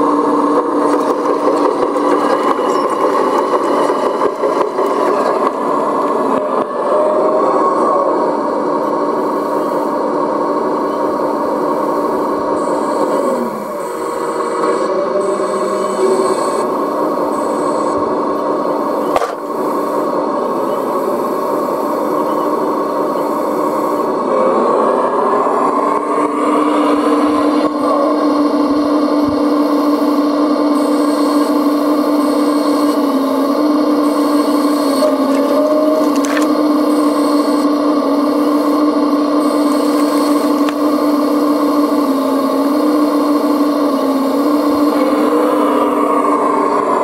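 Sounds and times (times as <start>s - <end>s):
model excavator motor whirring: 0.0s - 6.7s, 25.8s - 47.0s.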